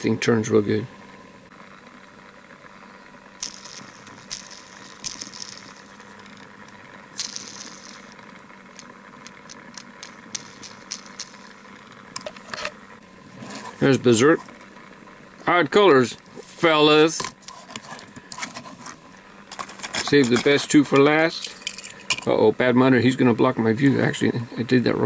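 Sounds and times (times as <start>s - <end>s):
toy car handling clicks and rustles: 3.4s - 12.7s, 17.2s - 22.3s.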